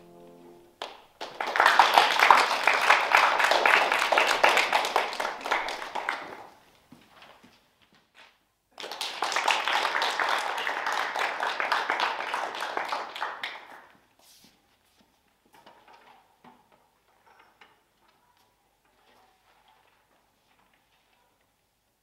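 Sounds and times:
audience applause: 0:00.8 - 0:06.6, 0:08.8 - 0:13.9.

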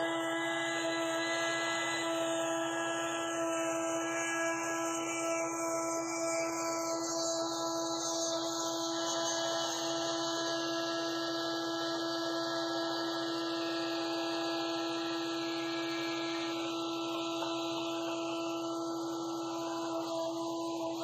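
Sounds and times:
band sawmill hum and whine: 0:13.8 - 0:21.0.

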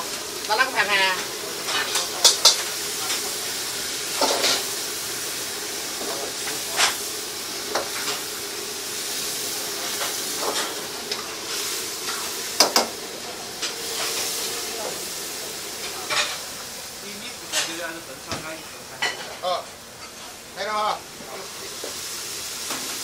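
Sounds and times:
food sizzling in a wok: 0:00.0 - 0:23.0.

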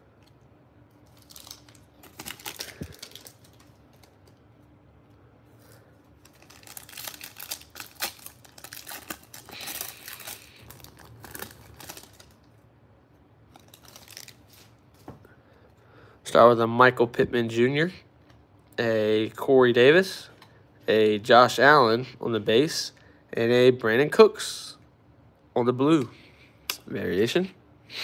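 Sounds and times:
foil pack tearing and crinkling: 0:01.0 - 0:04.4, 0:06.2 - 0:12.5, 0:13.5 - 0:14.8.

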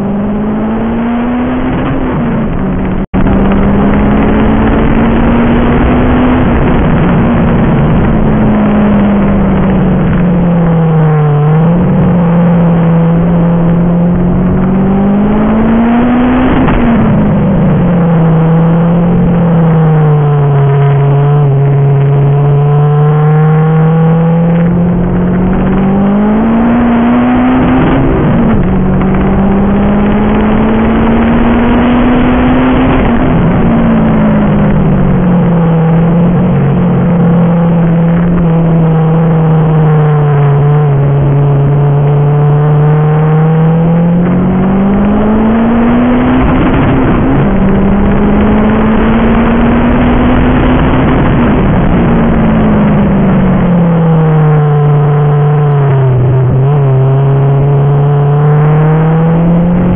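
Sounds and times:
car engine accelerating: 0:00.0 - 0:59.9
road noise: 0:00.0 - 0:59.9.

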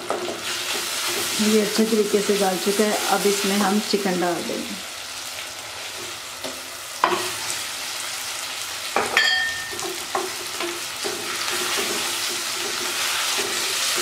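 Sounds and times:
hot oil sizzling: 0:00.0 - 0:14.0
ringing clink: 0:09.2 - 0:09.8.

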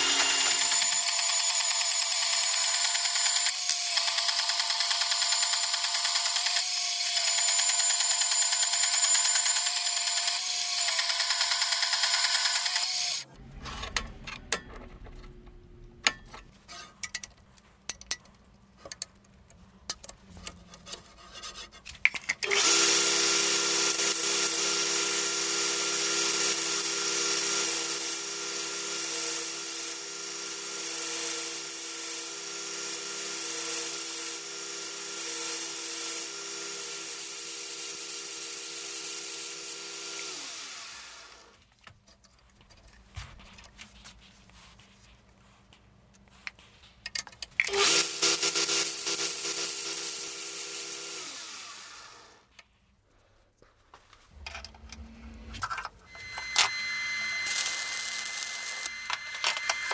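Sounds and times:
lower-pitched machine running: 0:54.4 - 0:59.9
power tool loud high hiss: 0:56.2 - 0:59.9.

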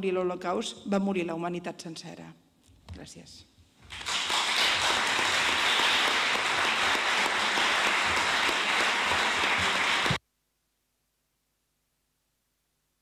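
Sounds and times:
audience applauding: 0:03.8 - 0:10.2.

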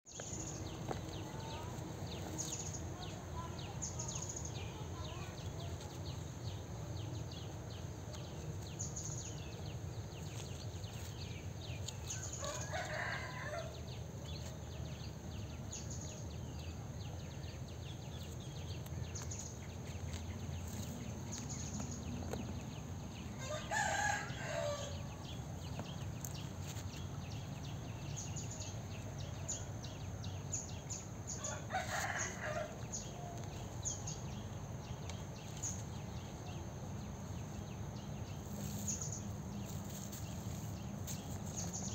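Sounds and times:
rooster crowing: 0:12.4 - 0:13.7, 0:23.4 - 0:25.1, 0:31.4 - 0:32.9.

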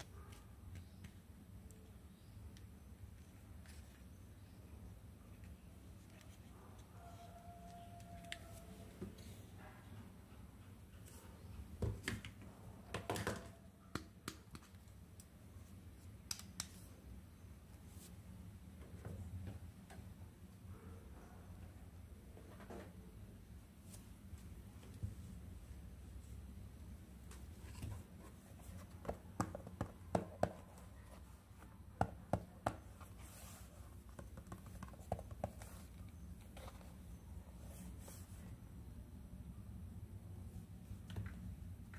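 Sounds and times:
low room hum: 0:00.0 - 0:41.9.

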